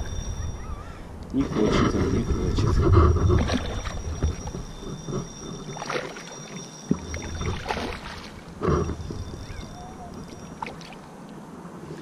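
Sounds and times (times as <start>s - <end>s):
low rumble: 0.0s - 5.7s
water splashing and sloshing: 1.2s - 12.0s.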